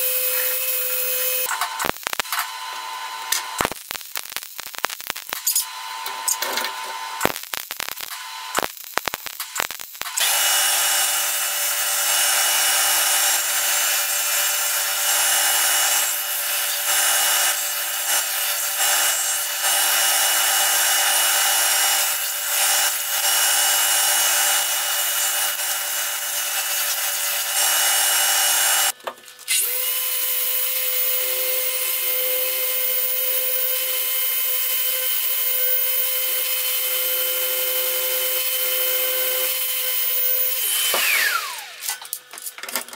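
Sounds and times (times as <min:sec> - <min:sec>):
orbital sander on rusty steel: 0:00.0 - 0:29.0.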